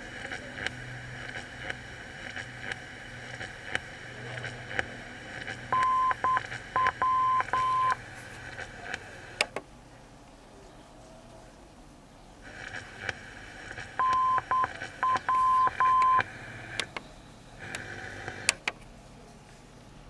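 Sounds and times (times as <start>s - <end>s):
radio static: 0.0s - 9.6s, 12.4s - 17.0s
sharp clicks: 0.6s - 9.7s, 12.6s - 18.9s
morse code beeping: 5.7s - 8.0s, 14.0s - 16.3s.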